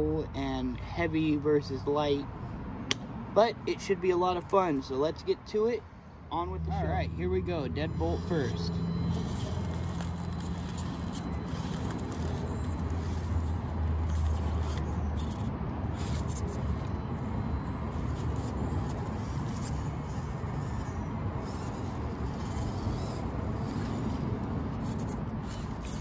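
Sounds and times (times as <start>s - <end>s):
tires clicking and scraping on rock: 4.1s - 26.0s
small electric motor running: 6.6s - 26.0s.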